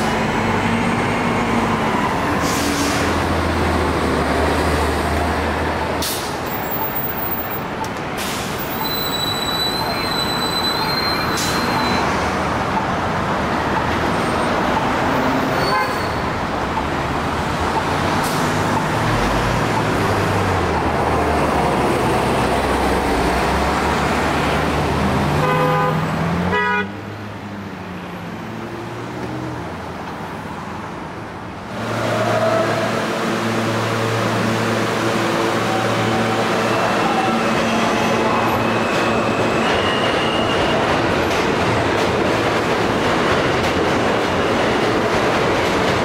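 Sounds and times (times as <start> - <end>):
vehicle horn toot: 15.6 - 16.2, 25.4 - 26.9.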